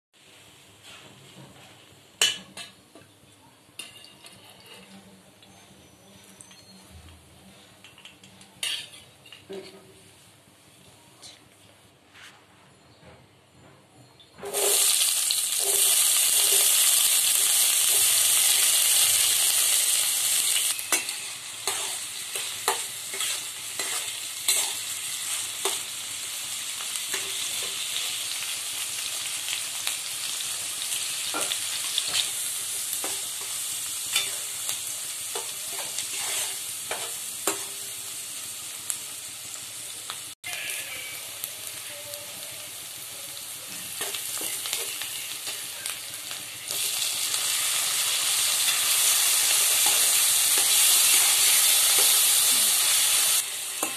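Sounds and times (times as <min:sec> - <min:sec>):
onions sizzling in oil: 0:14.4 - 0:53.9
metal spatula scraping pan: 0:20.3 - 0:25.9, 0:35.4 - 0:37.7.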